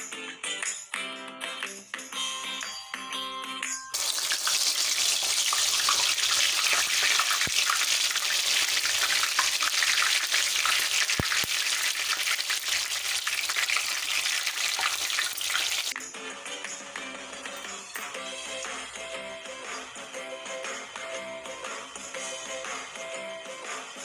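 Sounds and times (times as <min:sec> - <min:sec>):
okra deep-frying in oil: 0:04.0 - 0:16.0.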